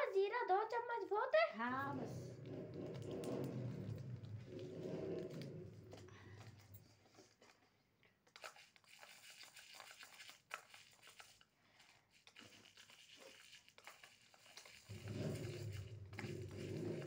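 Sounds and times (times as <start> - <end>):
spoon clicking in toy cups: 8.2 - 17.0.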